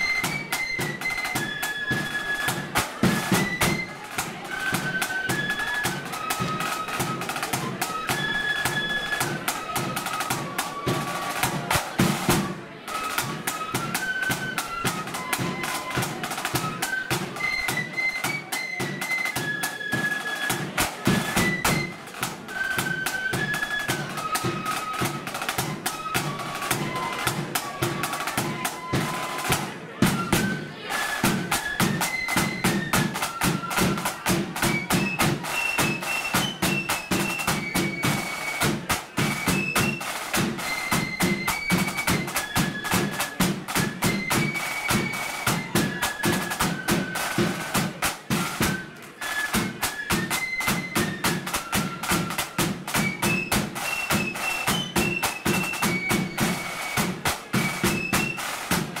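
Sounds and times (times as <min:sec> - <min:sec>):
snare drum beating: 0:00.0 - 0:04.2, 0:09.5 - 0:12.5, 0:20.5 - 0:48.8, 0:49.5 - 0:59.0
marching flute band: 0:00.0 - 0:59.0.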